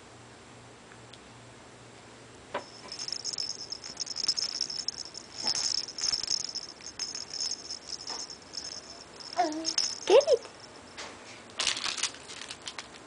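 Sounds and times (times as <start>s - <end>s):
plastic rattle toy shaken: 2.6s - 10.7s, 11.6s - 13.0s.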